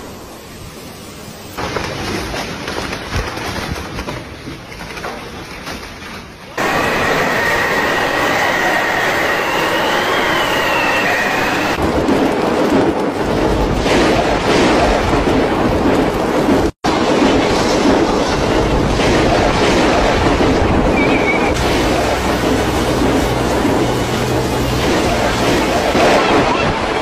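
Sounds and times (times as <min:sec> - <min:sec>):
heavy rain: 0:06.6 - 0:27.0
strong wind: 0:06.6 - 0:27.0.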